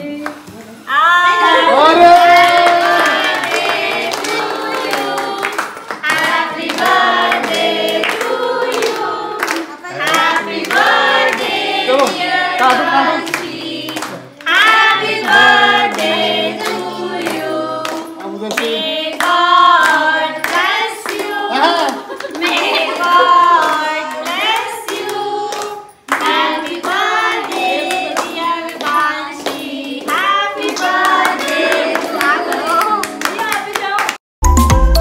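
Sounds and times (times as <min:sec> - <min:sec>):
group singing: 0:00.0 - 0:33.8
hands clapping in rhythm: 0:00.2 - 0:00.5, 0:02.1 - 0:34.6
musical accompaniment: 0:34.4 - 0:35.0.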